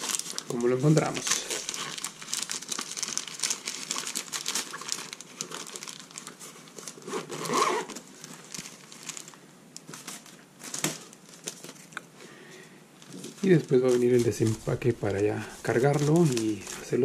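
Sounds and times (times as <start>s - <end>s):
nylon bag rustling: 0.0s - 11.9s, 13.0s - 17.0s.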